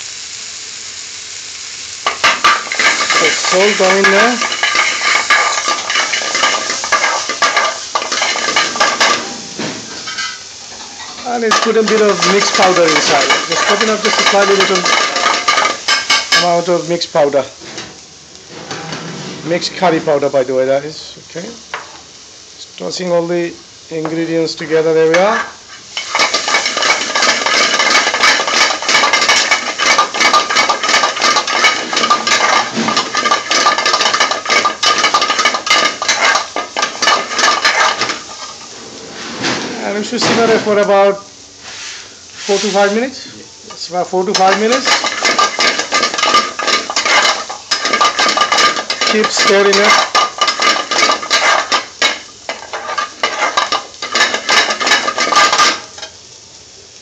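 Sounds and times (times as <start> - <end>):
metal spoon scraping frying pan: 2.0 - 16.7, 17.6 - 20.2, 25.1 - 39.9, 43.7 - 56.1.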